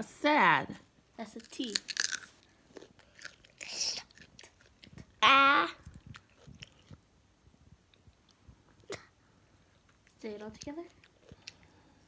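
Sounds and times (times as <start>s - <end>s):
carrots being chewed: 1.4s - 5.2s, 5.8s - 7.1s, 9.7s - 12.0s.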